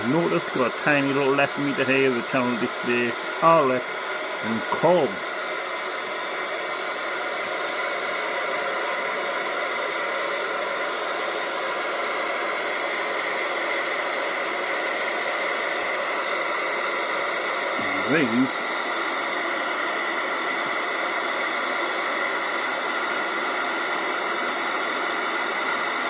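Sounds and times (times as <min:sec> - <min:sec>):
radio static hiss: 0:00.0 - 0:05.2, 0:17.8 - 0:18.7.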